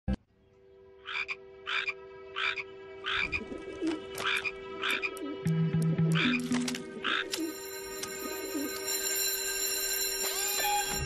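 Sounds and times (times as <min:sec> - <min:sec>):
cartoon frog croaking: 0:01.1 - 0:03.4.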